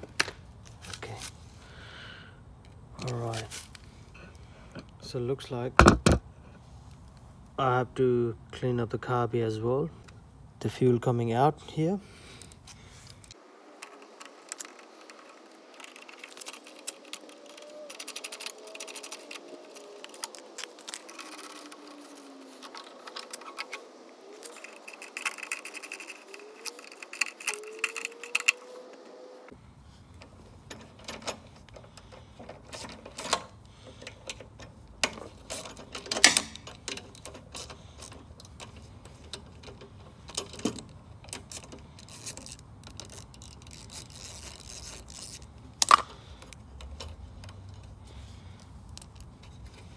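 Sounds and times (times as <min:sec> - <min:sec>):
metal tools clicking and scraping: 0:13.2 - 0:28.7, 0:30.2 - 0:48.0.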